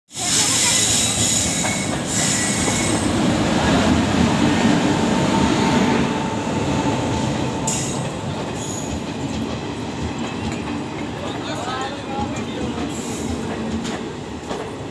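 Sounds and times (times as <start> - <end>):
train wheels rumbling clatter: 0.1 - 14.9
high-pitched wheel squeal: 0.3 - 3.0.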